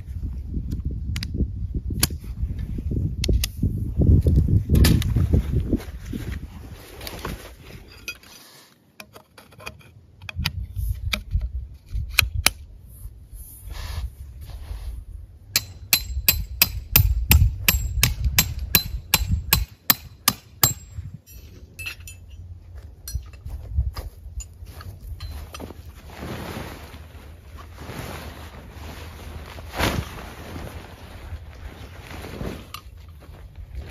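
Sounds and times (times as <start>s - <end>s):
hammer striking metal tent pegs: 15.5s - 22.4s
metal pegs clinking: 20.6s - 23.5s
bag rustling: 25.3s - 33.9s.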